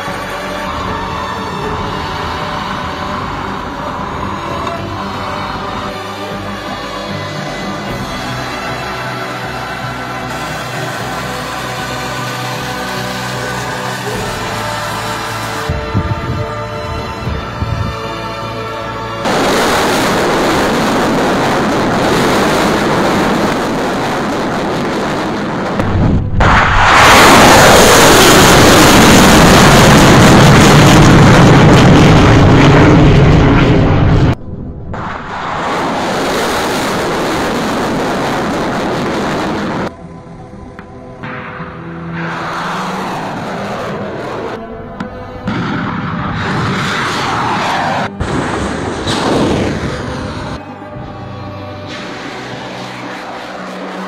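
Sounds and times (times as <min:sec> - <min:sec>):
background music: 0:00.0 - 0:24.9, 0:38.9 - 0:54.0
rocket motors roaring: 0:19.2 - 0:39.9, 0:41.6 - 0:50.6, 0:51.9 - 0:54.0
low rumble: 0:19.2 - 0:51.2.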